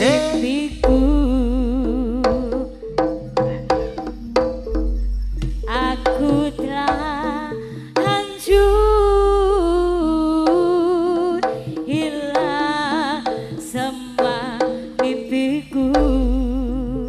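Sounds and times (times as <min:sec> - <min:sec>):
hand drum strokes: 0:00.0 - 0:17.0
wavering gamelan melody: 0:00.0 - 0:17.0.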